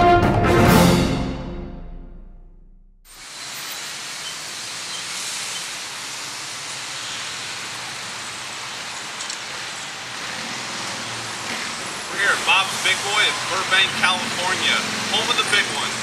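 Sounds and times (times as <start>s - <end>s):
passing cars: 3.4s - 16.0s.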